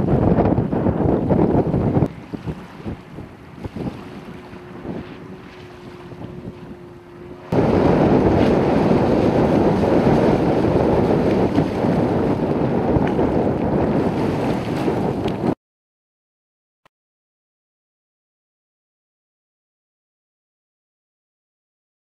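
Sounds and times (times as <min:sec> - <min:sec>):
boat wash: 0:00.0 - 0:15.6
motorboat engine humming: 0:00.0 - 0:15.6
wind buffeting microphone: 0:00.0 - 0:15.6.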